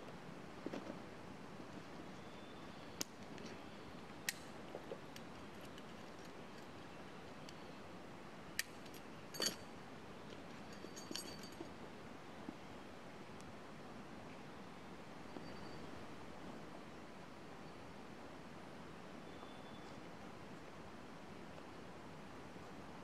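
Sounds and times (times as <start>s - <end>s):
faint steady hiss: 0.0s - 23.0s
camping gear clicks and rattles: 4.3s - 6.7s, 8.6s - 9.6s, 10.3s - 11.8s.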